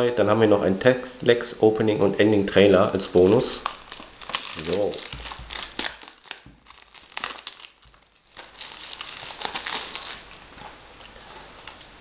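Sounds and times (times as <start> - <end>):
plastic shrink wrap crinkling: 2.9 - 12.0.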